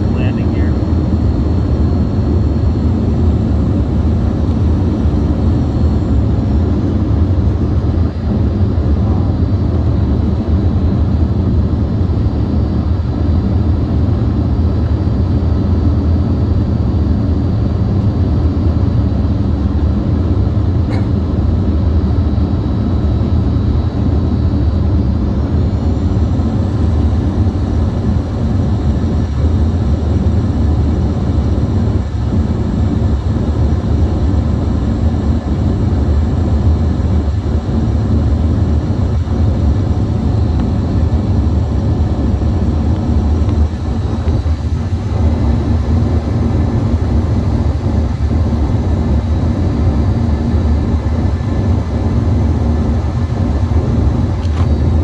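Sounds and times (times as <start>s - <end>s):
faint high whine: 0.0s - 18.0s
jet airliner cabin rumble: 0.0s - 55.0s.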